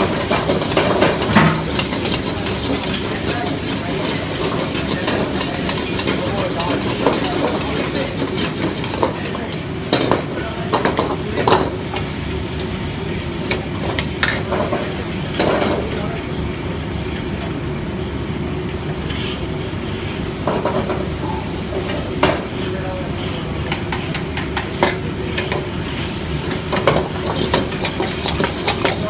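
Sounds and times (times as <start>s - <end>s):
ladle scraping against wok: 0.0s - 15.9s, 24.7s - 29.0s
food sizzling: 0.0s - 29.0s
gas burner rushing: 0.0s - 29.0s.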